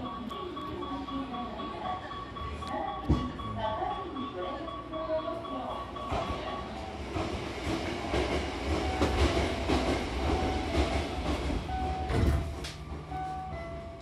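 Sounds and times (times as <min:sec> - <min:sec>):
passing train rumble: 0:00.0 - 0:14.0
train wheels clattering: 0:05.5 - 0:13.8
sliding train doors shutting: 0:06.0 - 0:13.9.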